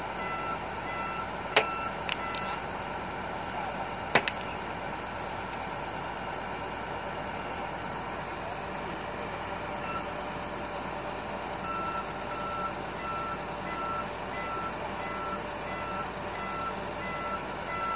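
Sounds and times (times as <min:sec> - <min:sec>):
heavy machine engine running: 0:00.0 - 0:17.9
backup alarm beeping: 0:00.1 - 0:02.6, 0:11.6 - 0:17.9.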